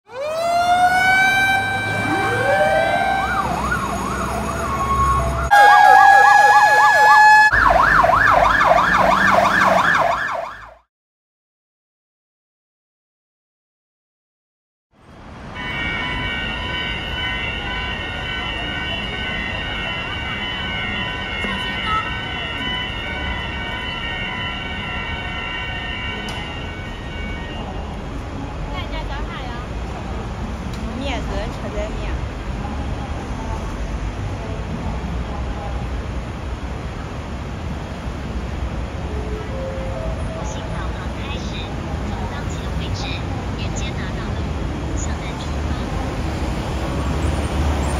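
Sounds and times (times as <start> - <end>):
fire engine sirens wailing: 0.1 - 10.8, 15.6 - 28.2, 38.8 - 42.8
siren yelp: 0.1 - 10.8, 15.6 - 27.8, 39.0 - 41.8.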